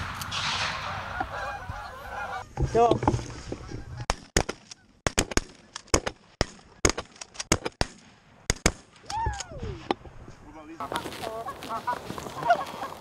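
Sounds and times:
shotgun fire: 0.0 - 1.1
goose honk: 0.9 - 2.9, 10.8 - 13.0.

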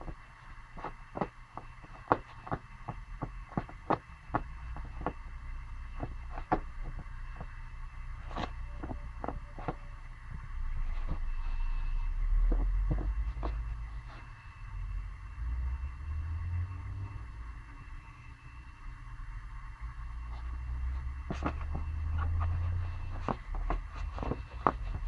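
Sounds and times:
puppy scuffling and biting: 0.0 - 5.3, 8.2 - 9.8, 12.4 - 14.4, 21.2 - 25.0
low dull noise: 0.0 - 25.0.

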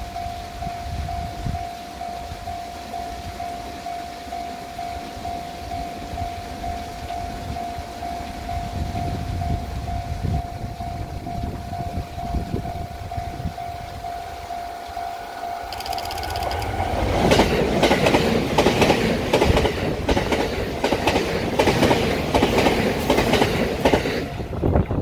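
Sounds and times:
wind rumble on microphone: 0.0 - 2.6, 6.1 - 14.5, 24.2 - 25.0
level crossing alarm ringing: 13.1 - 16.8.

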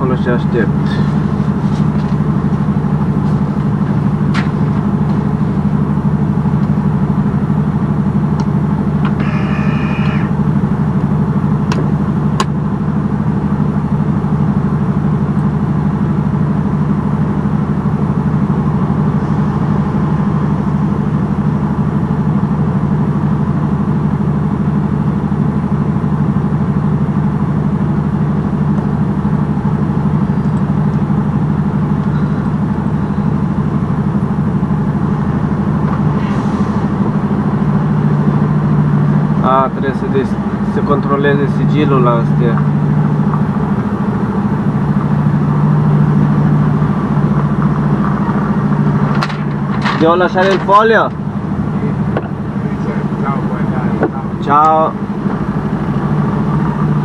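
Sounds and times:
diesel engine running: 0.0 - 57.0
high-pitched squeal: 9.0 - 10.5.

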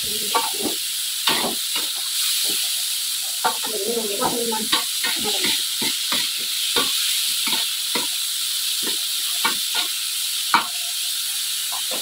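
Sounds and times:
vegetables sizzling in a wok: 0.0 - 12.0
metal spatula scraping a pan: 0.2 - 2.7, 3.4 - 8.2.

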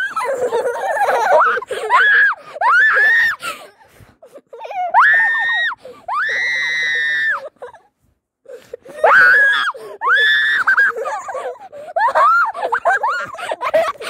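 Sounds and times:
child screaming: 4.7 - 7.4, 9.0 - 11.0.

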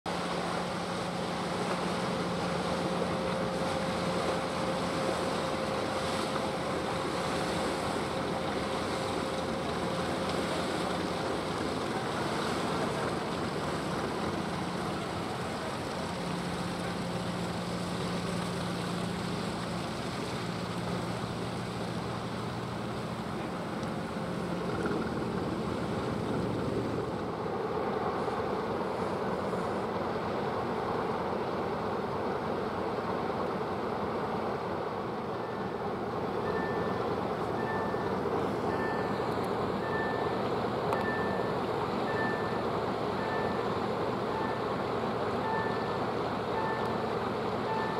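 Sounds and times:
wind: 0.0 - 47.9
ship diesel engine humming: 0.1 - 47.9
water noise: 0.1 - 47.9.

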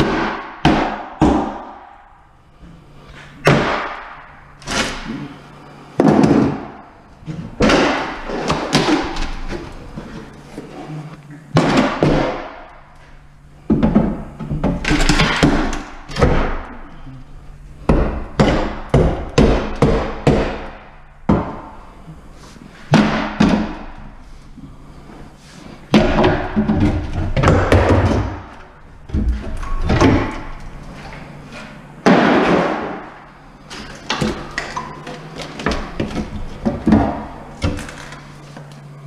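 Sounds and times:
wooden cabinets being torn down: 3.4 - 5.4, 6.0 - 12.7, 13.7 - 17.1, 25.9 - 30.7, 32.0 - 38.4.

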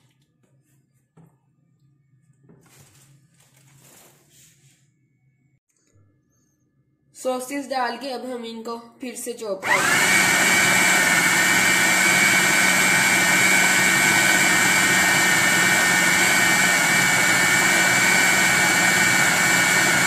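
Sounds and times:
food processor motor whining: 9.6 - 20.0.

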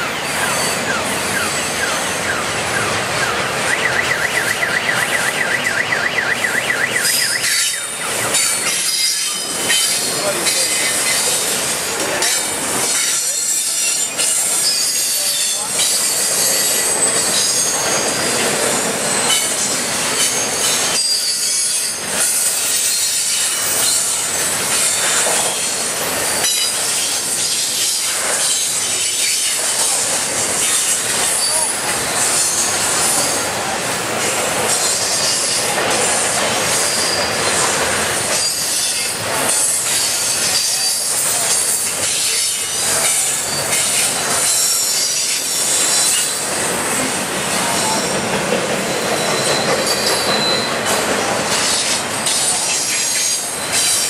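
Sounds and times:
high-pitched wheel squeal: 0.0 - 29.6, 36.7 - 37.6, 38.2 - 46.5, 48.9 - 51.0
freight train wheels on rails: 0.0 - 54.0
warbling vehicle alarm: 0.1 - 8.4.

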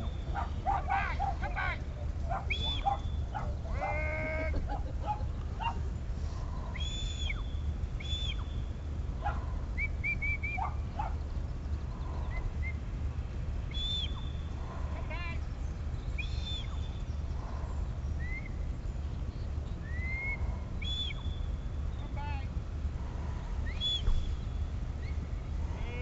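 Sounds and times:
steady low rumble: 0.0 - 26.0
high shepherd's whistles: 2.5 - 3.0, 6.8 - 8.5, 9.8 - 10.7, 13.7 - 14.4, 16.2 - 16.9, 19.8 - 21.5, 23.7 - 24.4
sheep bleating: 3.6 - 4.6.

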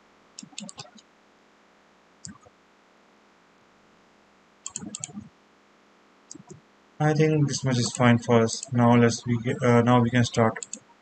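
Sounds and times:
faint steady hiss: 0.0 - 11.0
keyboard and mouse clicks: 0.4 - 1.0, 2.2 - 2.5, 4.6 - 5.3, 6.3 - 6.6, 10.5 - 10.9.

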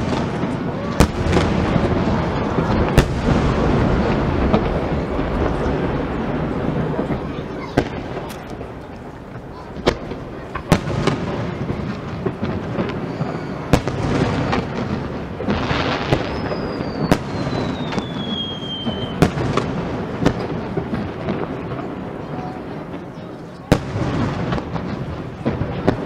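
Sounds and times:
firework bangs: 0.0 - 26.0
firework crackling rumble: 0.0 - 26.0
falling firework whistle: 12.7 - 14.8, 15.6 - 19.6.

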